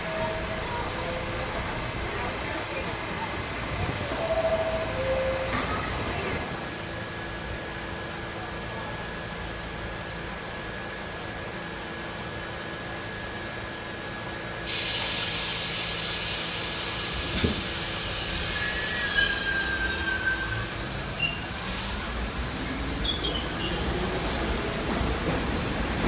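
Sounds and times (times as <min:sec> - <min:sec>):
subway train humming: 0:00.0 - 0:26.0
train wheel squeal: 0:16.9 - 0:24.0.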